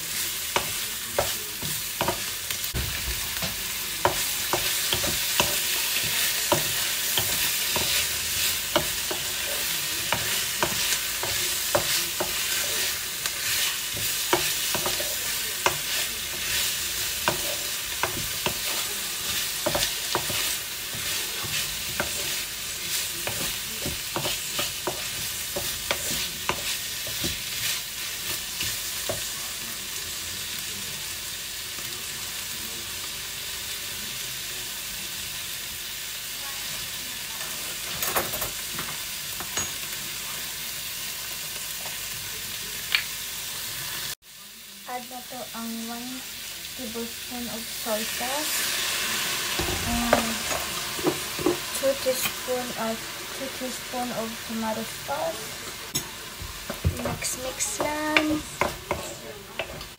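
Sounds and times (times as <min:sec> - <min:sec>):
vegetables sizzling in a pan: 0:00.0 - 0:59.9
utensil tapping a pan: 0:56.0 - 0:59.9.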